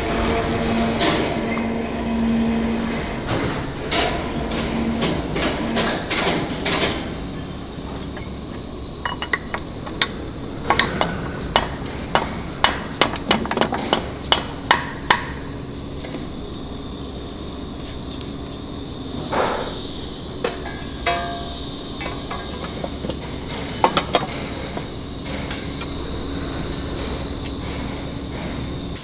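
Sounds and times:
steady hum: 0:00.0 - 0:29.0
steel parts clattering: 0:03.2 - 0:15.5.

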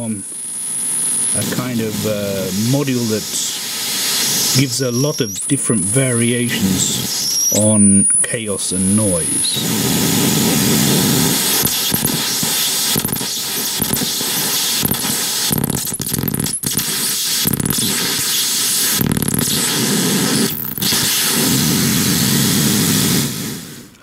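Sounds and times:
dense hissing synthesizer noise: 0:01.3 - 0:11.5.

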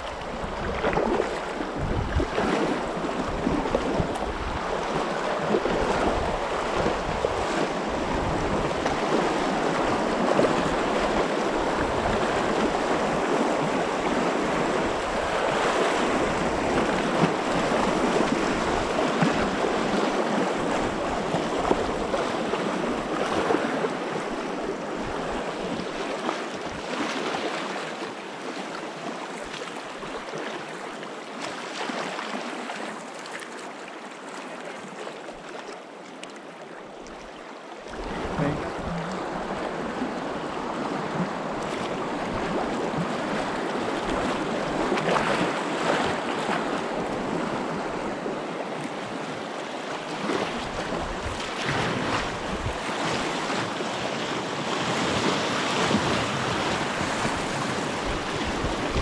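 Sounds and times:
river water rushing: 0:00.0 - 0:59.0.

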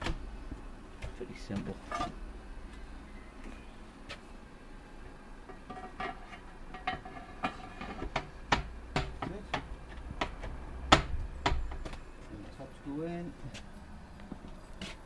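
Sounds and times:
metal planks knocking and clattering: 0:05.5 - 0:11.9.

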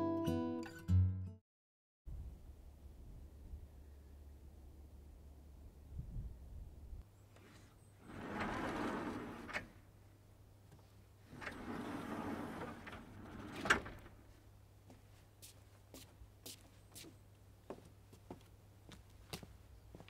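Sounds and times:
sliding door rolling: 0:08.0 - 0:09.9, 0:11.2 - 0:14.3.

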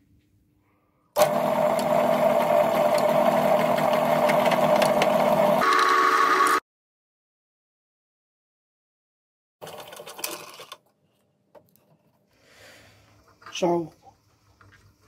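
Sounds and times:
pillar drill humming: 0:01.2 - 0:06.6.

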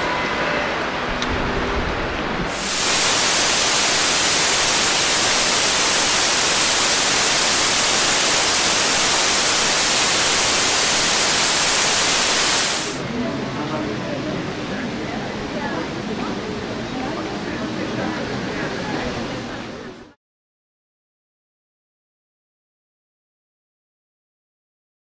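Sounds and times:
static hiss: 0:02.5 - 0:13.0.

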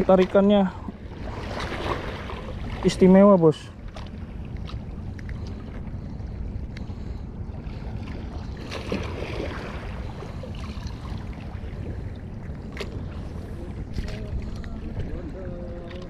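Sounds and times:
water lapping: 0:00.0 - 0:16.0
wind rumbling on microphone: 0:00.0 - 0:16.0.

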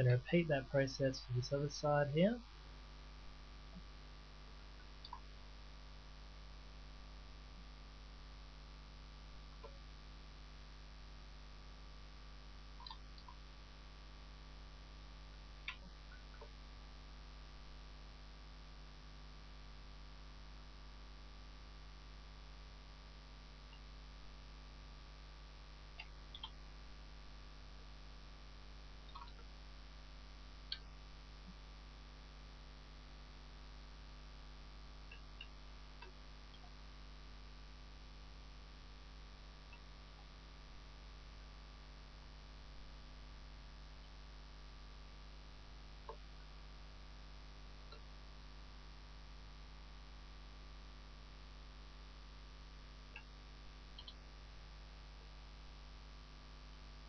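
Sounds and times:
faint mains hum: 0:00.0 - 0:57.0
computer mouse clicks: 0:12.8 - 0:13.4, 0:26.0 - 0:26.6, 0:29.1 - 0:29.5, 0:54.0 - 0:54.2.

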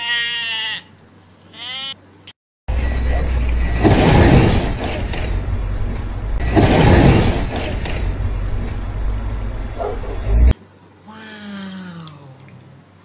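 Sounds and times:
van engine rumble: 0:02.7 - 0:10.6.

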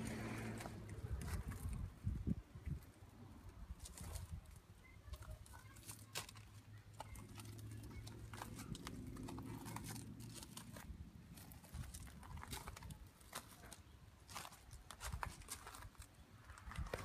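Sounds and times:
footsteps on gravel: 0:03.8 - 0:17.0.

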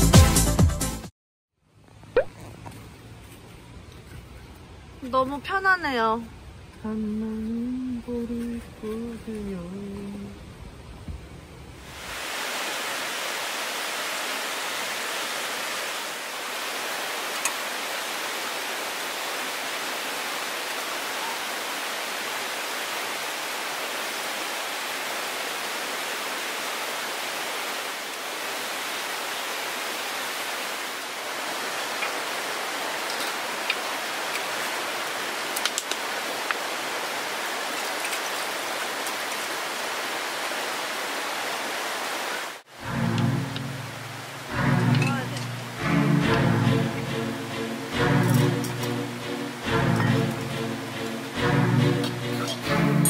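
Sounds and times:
stream rushing over rocks: 0:11.8 - 0:53.0.

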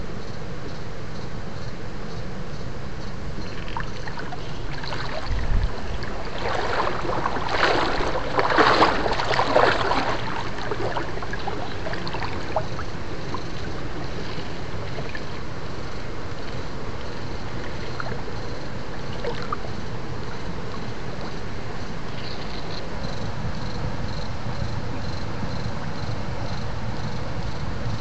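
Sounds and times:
steady low rumble: 0:00.0 - 0:28.0
water sloshing and splashing: 0:03.4 - 0:21.3.

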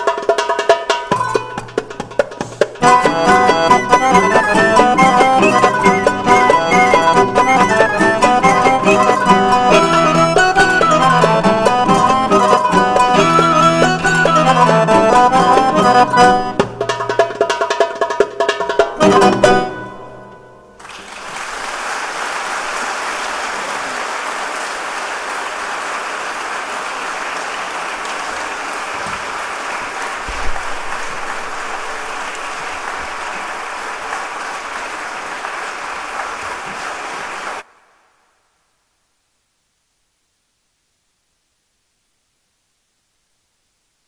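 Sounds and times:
audience applauding: 0:02.8 - 0:16.6, 0:20.8 - 0:37.7
ensemble chord with accordion: 0:02.8 - 0:16.8.

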